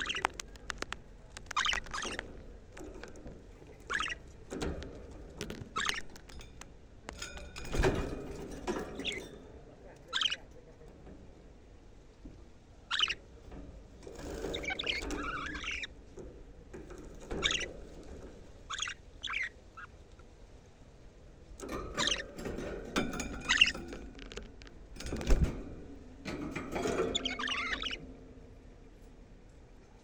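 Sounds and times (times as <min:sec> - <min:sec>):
budgerigars chirping and warbling: 0:00.0 - 0:00.4, 0:01.4 - 0:04.7, 0:05.4 - 0:06.4, 0:08.9 - 0:09.4, 0:10.0 - 0:10.6, 0:12.8 - 0:13.3, 0:14.2 - 0:16.0, 0:16.9 - 0:20.0, 0:21.8 - 0:22.4, 0:23.1 - 0:24.0, 0:26.7 - 0:28.2.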